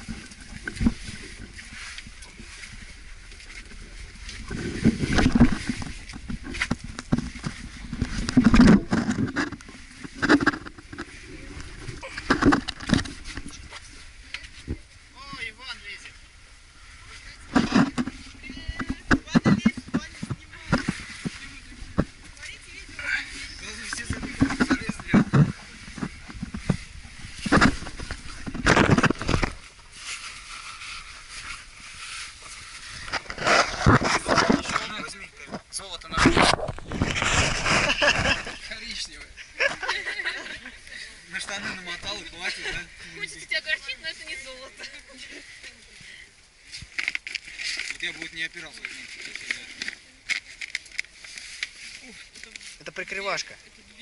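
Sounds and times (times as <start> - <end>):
camera handling scraping and rustling: 4.4 - 14.6, 17.5 - 22.4, 23.4 - 38.8, 46.7 - 53.4.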